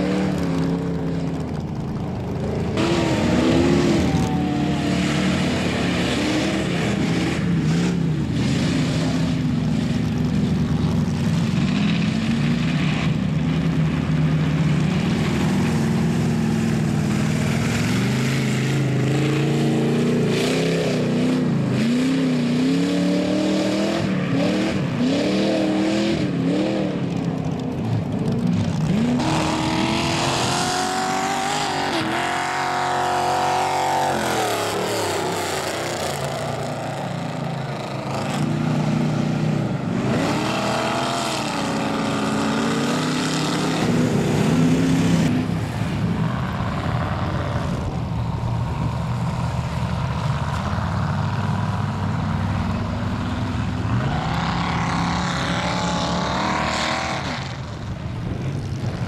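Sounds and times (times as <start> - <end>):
truck engines revving hard: 0.0 - 59.0.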